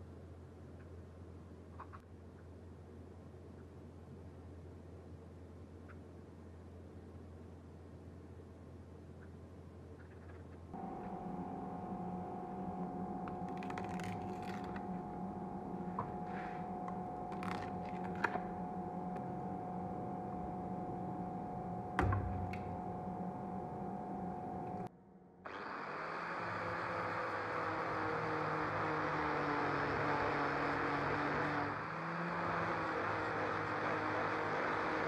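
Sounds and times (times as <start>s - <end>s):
steady hum: 10.6s - 35.0s
angle grinder sanding resin: 25.5s - 35.0s.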